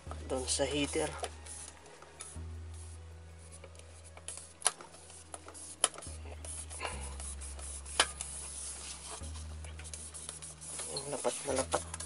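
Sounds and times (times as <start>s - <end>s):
metal pot scraping and rubbing: 3.4s - 12.0s.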